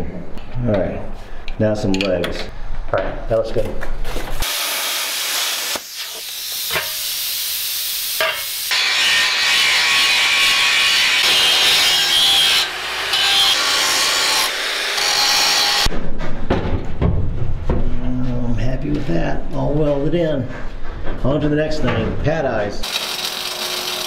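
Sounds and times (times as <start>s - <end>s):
power tools grinding steel: 4.4s - 15.9s, 22.8s - 24.0s.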